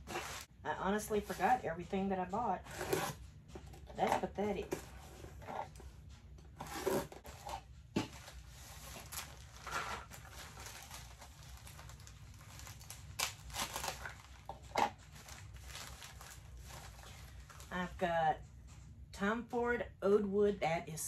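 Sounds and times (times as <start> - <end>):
plastic mailer crinkling: 0.0 - 0.5, 6.6 - 17.8.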